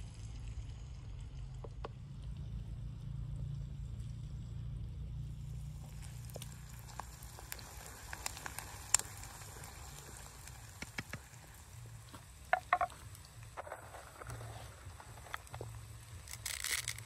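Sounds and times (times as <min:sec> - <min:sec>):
wood fire crackling and popping: 0:00.1 - 0:17.0
onions frying in a pan: 0:04.6 - 0:17.0.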